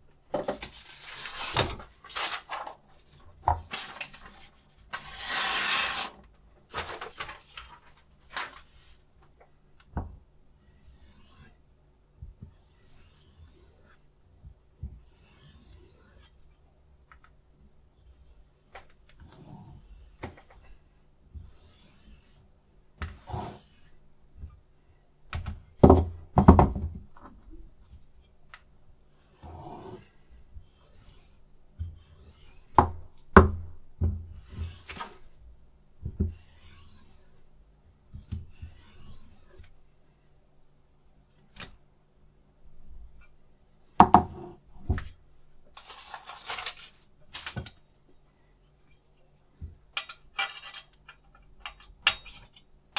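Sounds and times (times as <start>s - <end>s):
sharpening stone scraping: 10.6s - 11.6s.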